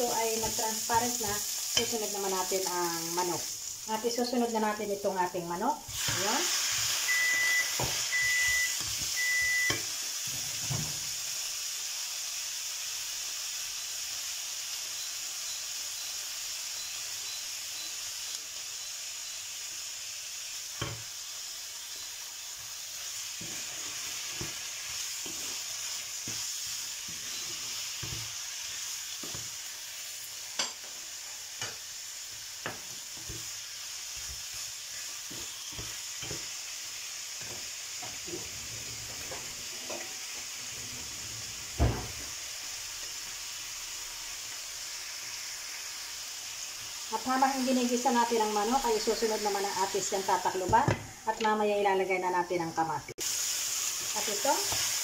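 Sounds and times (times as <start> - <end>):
chicken sizzling in a frying pan: 0.0 - 55.0
short beeps: 7.1 - 9.8, 16.8 - 18.0.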